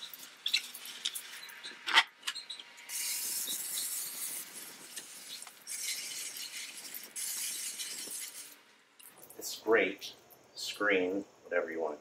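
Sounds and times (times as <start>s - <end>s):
hose nozzle spraying water: 2.9s - 9.5s.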